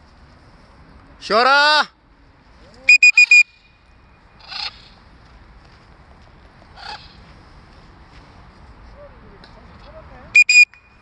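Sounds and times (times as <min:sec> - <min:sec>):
loud high beeps: 0:02.9 - 0:03.6, 0:10.4 - 0:11.0
macaw squawks: 0:04.4 - 0:05.0, 0:06.8 - 0:07.2.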